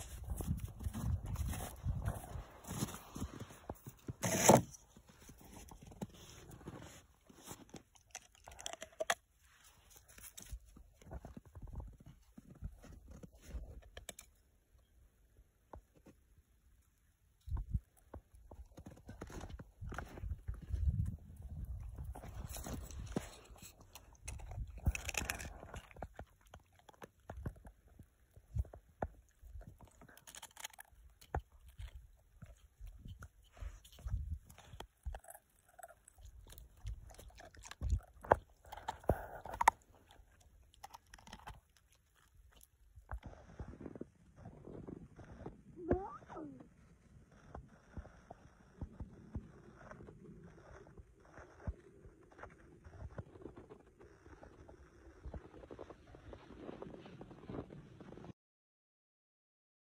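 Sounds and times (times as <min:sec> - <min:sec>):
footsteps crunching in snow: 0:00.0 - 0:07.6
dog gnawing ice: 0:04.0 - 0:11.9, 0:18.7 - 0:44.0.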